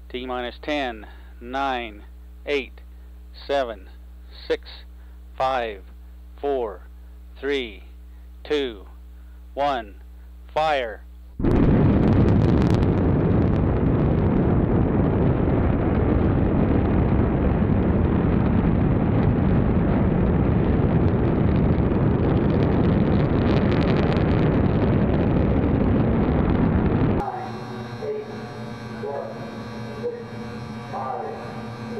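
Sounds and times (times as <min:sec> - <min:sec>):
deep rocket rumble with crackle: 0:11.4 - 0:31.9.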